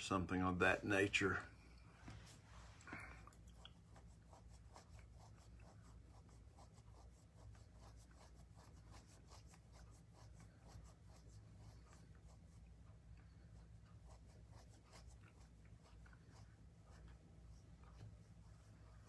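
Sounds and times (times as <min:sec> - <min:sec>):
low steady hum: 0:00.0 - 0:19.0
faint light ticks and scratches: 0:01.8 - 0:19.0.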